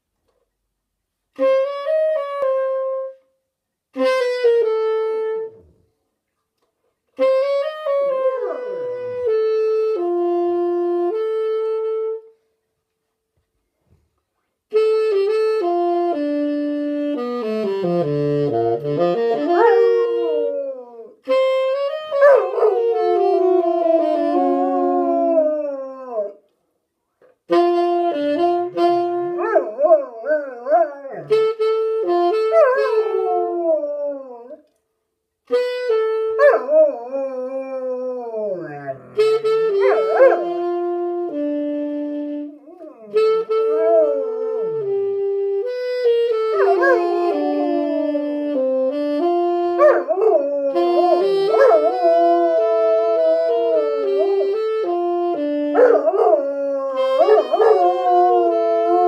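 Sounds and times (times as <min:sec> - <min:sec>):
musical instrument holding notes: 0:07.2 - 0:12.4, 0:14.7 - 0:26.5, 0:27.5 - 0:34.7, 0:35.5 - 0:59.0
dog howling: 0:22.2 - 0:26.4, 0:46.5 - 0:48.4, 0:49.8 - 0:54.4, 0:55.8 - 0:59.0.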